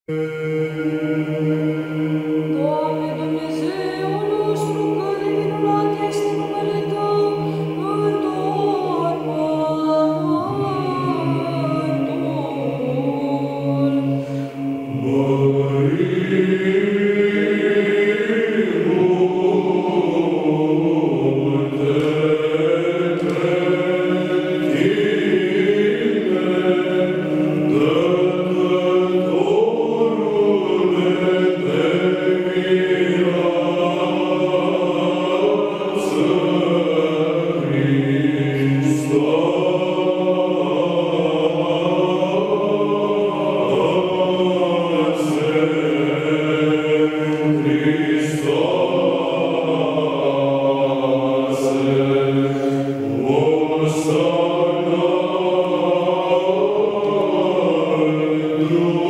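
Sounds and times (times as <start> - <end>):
low vocal drone: 0.1 - 59.0
male choir chanting a cappella: 0.1 - 59.0.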